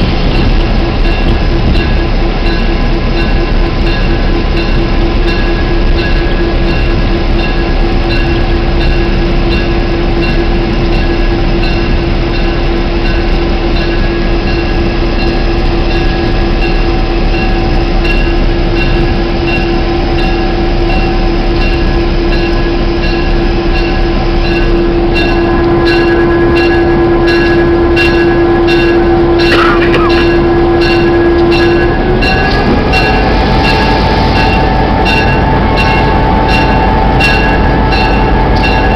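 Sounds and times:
diesel locomotive engine hum: 0.0s - 38.9s
wheel and track noise: 21.9s - 38.9s.

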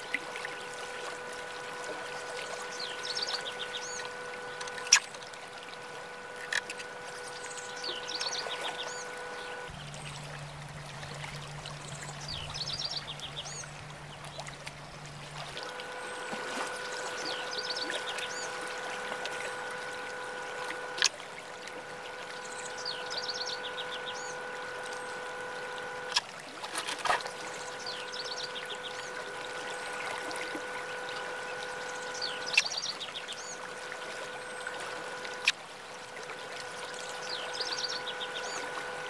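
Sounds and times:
birds chirping: 0.0s - 26.2s, 26.9s - 39.0s
flowing water: 0.0s - 39.0s
chord of steady tones: 15.5s - 26.2s, 27.2s - 39.0s
sharp clicks: 32.1s - 32.8s.

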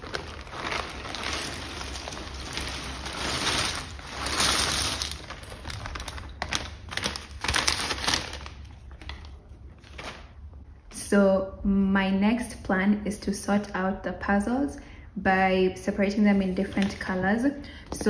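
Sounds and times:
plastic bag crinkling: 0.0s - 10.4s.

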